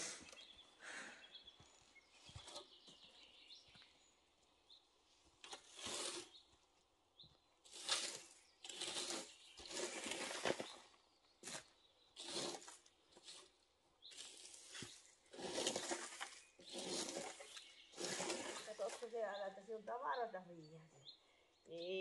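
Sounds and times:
rustling scrapes through dry debris: 5.4s - 6.4s, 7.6s - 19.3s.

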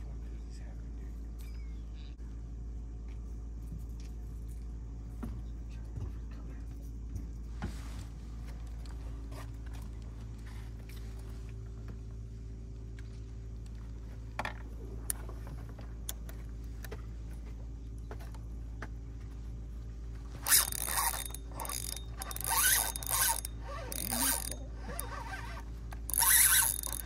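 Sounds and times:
steady low hum: 0.0s - 27.0s
fishing reel ratcheting: 20.4s - 27.0s.

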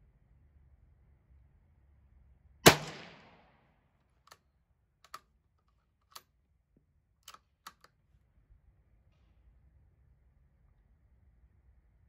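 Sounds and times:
rifle shot with echo: 2.6s - 3.6s
faint clicks: 5.0s - 6.3s.

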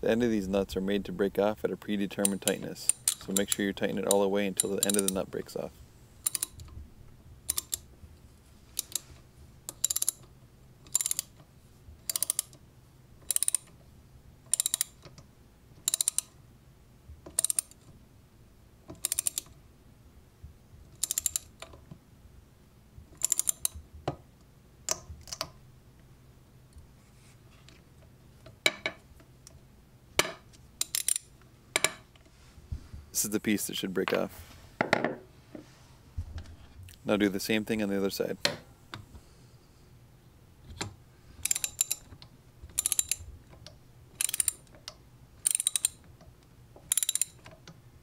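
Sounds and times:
ratcheting wrench clicking: 2.2s - 5.2s, 6.2s - 6.7s, 7.5s - 7.8s, 8.8s - 9.1s, 9.7s - 11.4s, 12.1s - 12.6s, 13.2s - 13.8s, 14.5s - 15.2s, 15.8s - 16.4s, 17.3s - 17.8s, 18.9s - 19.5s, 21.0s - 21.8s, 23.2s - 23.8s, 30.8s - 31.3s, 41.4s - 42.1s, 42.7s - 43.3s, 44.2s - 44.7s, 45.4s - 46.0s, 46.8s - 47.6s.

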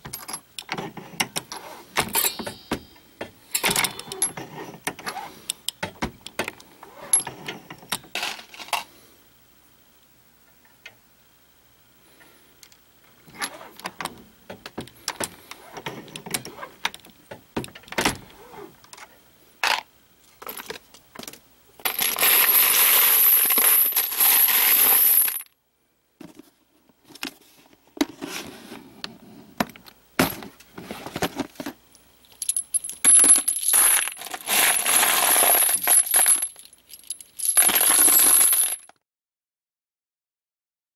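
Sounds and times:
brass cartridge cases jingling: 2.1s - 2.9s, 3.5s - 4.5s, 32.3s - 38.8s.

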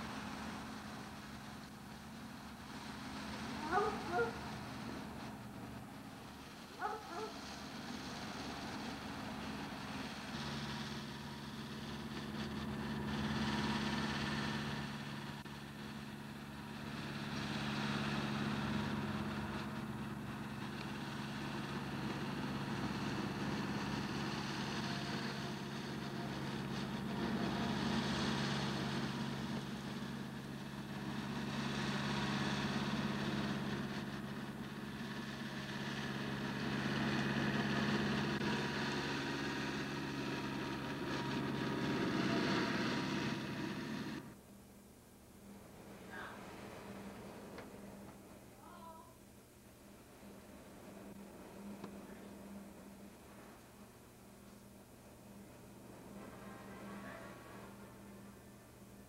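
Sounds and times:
lawn tractor engine running: 0.0s - 44.4s.

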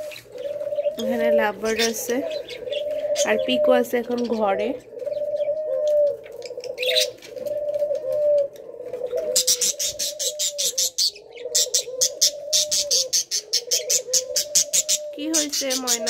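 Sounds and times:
parrots chirping: 0.0s - 5.6s, 9.4s - 16.0s
doves cooing: 0.0s - 16.0s.

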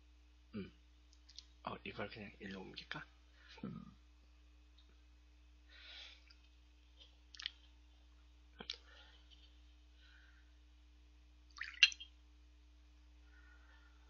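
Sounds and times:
faint steady hum: 0.0s - 14.0s
glass clicking: 11.6s - 12.1s.

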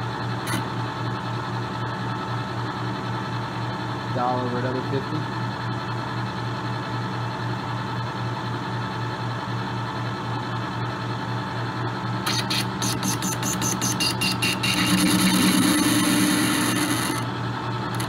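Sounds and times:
rapid pulsing metal cutting: 12.3s - 17.2s
lathe humming: 12.6s - 18.0s.

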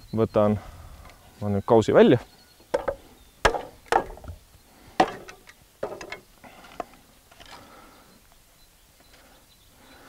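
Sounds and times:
sharp wooden knocks: 2.7s - 4.4s, 5.0s - 6.2s
soft wooden clatter: 5.0s - 7.6s.

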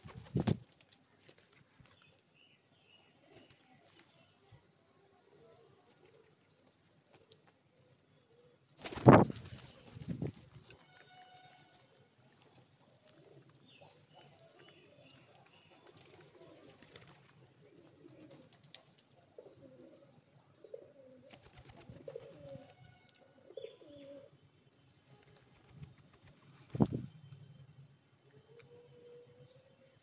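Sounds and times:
pigeons cooing: 13.0s - 24.3s.

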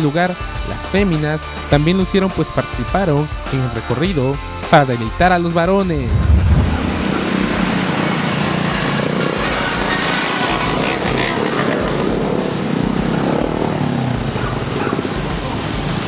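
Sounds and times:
motorcycle engines droning: 5.6s - 16.0s.

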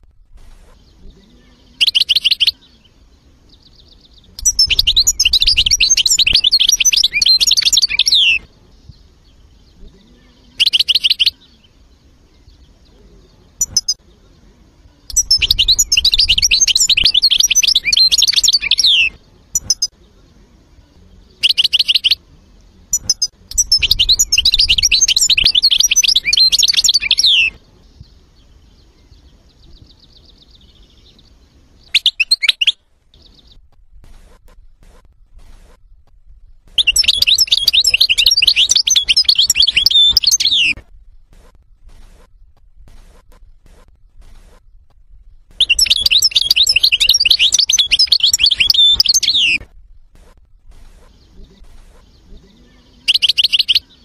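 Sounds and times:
goldfinch twittering song: 0.6s - 14.0s, 15.0s - 20.0s, 22.9s - 33.6s, 36.6s - 40.8s, 45.5s - 49.7s, 50.8s - 54.0s.

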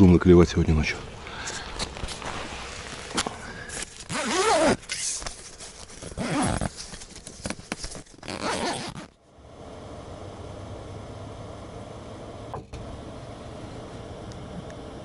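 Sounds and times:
fabric rustling: 1.6s - 9.2s
tent zipper pulled: 2.0s - 9.2s
gas burner humming: 9.0s - 15.0s.

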